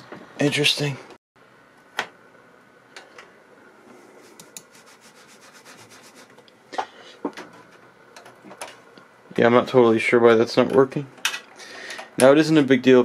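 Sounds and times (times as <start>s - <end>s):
faint rubbing and handling noise: 3.7s - 7.9s.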